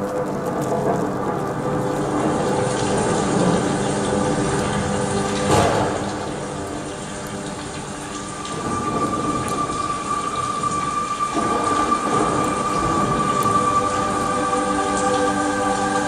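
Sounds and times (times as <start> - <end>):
steady held musical tones: 0.0 - 16.0
thunder-like rumbling: 0.0 - 16.0.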